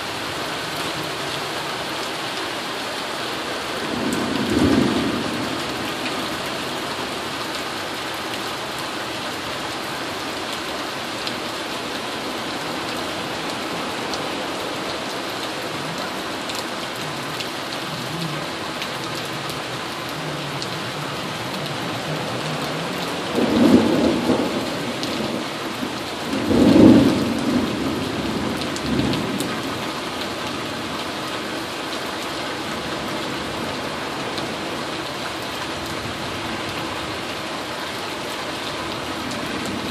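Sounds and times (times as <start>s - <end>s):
heavy rain falling: 0.0s - 39.9s
thunder rumbling: 3.9s - 6.8s, 20.4s - 29.9s.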